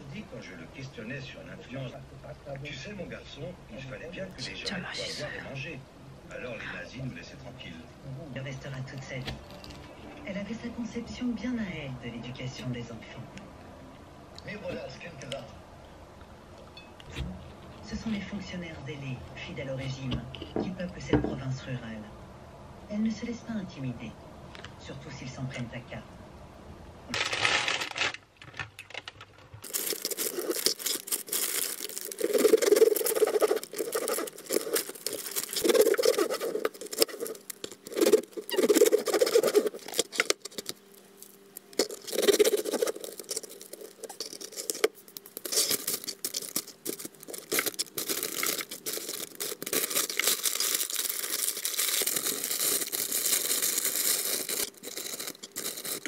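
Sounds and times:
bread crust crackling and tearing: 27.1 - 56.0.

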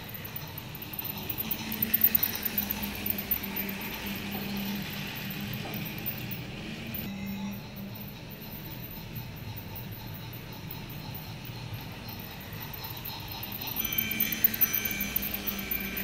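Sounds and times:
wheels rattling on plastic track: 0.0 - 7.1
toy train motor hum: 0.0 - 16.0.

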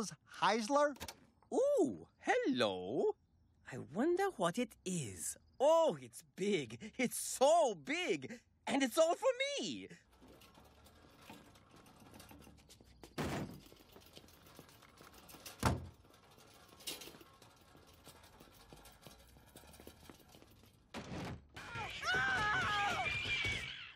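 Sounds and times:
person speaking: 0.0 - 10.1.

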